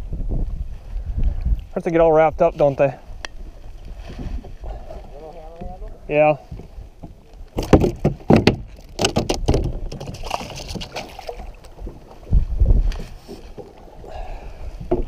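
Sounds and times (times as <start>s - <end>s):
knocks on plastic kayak deck: 7.6s - 10.3s
fish splashing into water: 9.0s - 11.7s.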